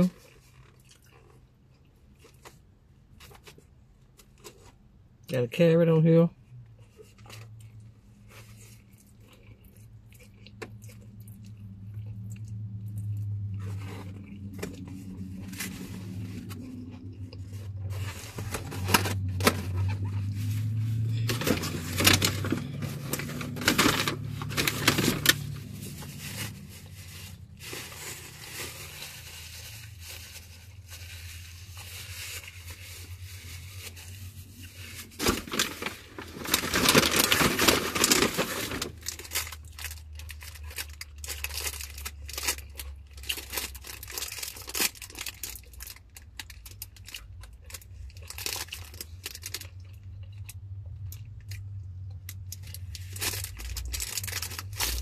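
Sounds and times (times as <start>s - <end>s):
food packaging crinkling: 12.5s - 55.0s.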